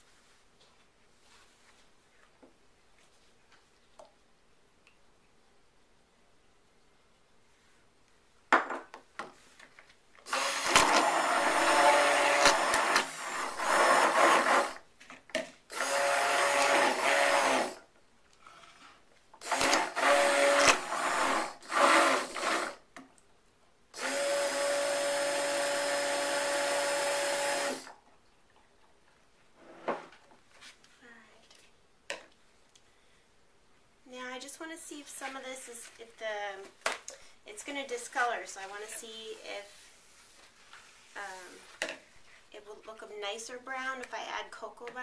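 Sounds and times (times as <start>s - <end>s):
stick blender motor running: 10.3s - 14.8s, 15.7s - 17.8s, 19.4s - 22.8s, 24.0s - 27.9s.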